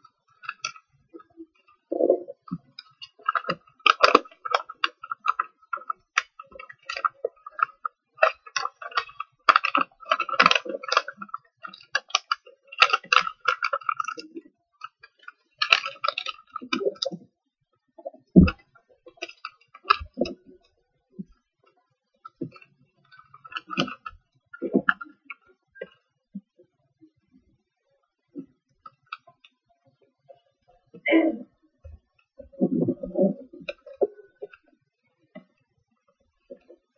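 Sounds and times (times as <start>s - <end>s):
paper crinkling and rustling: 0.3s - 1.8s, 2.4s - 17.2s, 22.2s - 24.1s.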